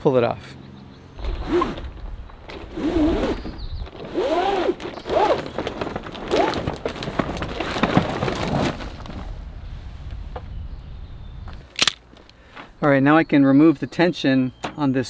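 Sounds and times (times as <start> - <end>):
awning fabric squeaking in rail: 1.2 - 6.8
fabric rustling and clicks: 1.2 - 9.3.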